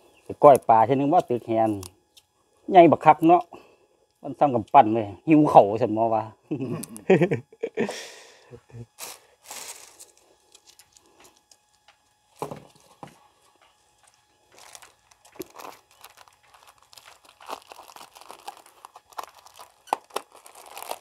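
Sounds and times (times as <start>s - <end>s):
plastic bags crinkling: 9.0s - 11.5s, 14.1s - 21.0s.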